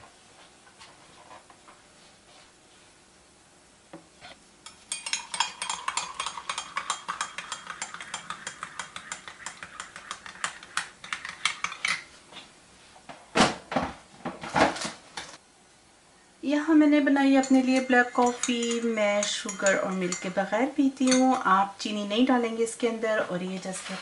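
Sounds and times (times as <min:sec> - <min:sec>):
teaspoon clinking against mug: 0:04.6 - 0:11.8, 0:17.4 - 0:21.4
coffee pouring into mug: 0:05.0 - 0:10.6.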